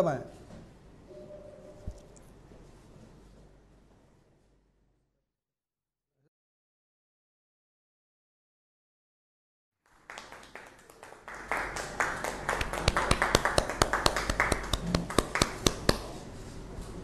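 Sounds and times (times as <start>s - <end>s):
small group applauding: 9.8s - 16.2s.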